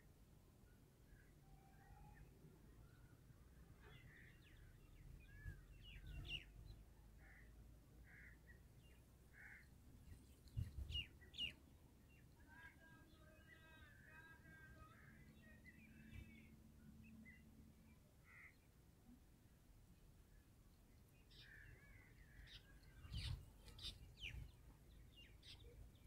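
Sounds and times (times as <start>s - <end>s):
harsh layered bird calls: 7.2s - 17.5s, 18.2s - 18.7s, 21.2s - 26.0s
wind rumble on microphone: 10.5s - 11.1s
bird chirps: 21.2s - 26.0s.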